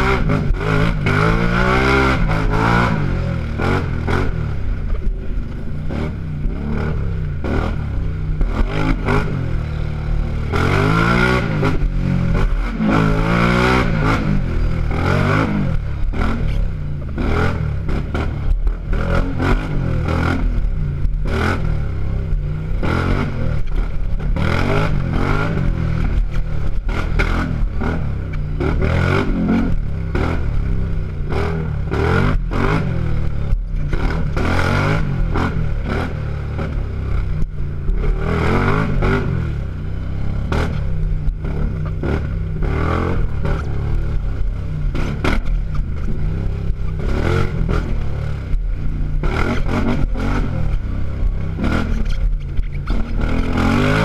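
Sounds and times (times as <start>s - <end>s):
atv engine revving: 0.0s - 54.0s
clatter and scraping over bumps: 0.0s - 54.0s.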